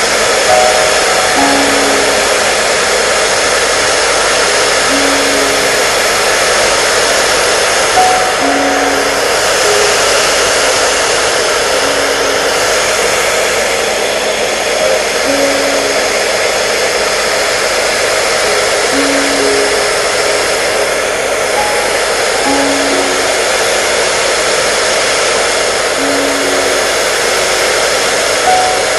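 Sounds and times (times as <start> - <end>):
hair dryer running: 0.0 - 28.9
soft slow tune: 0.0 - 28.9.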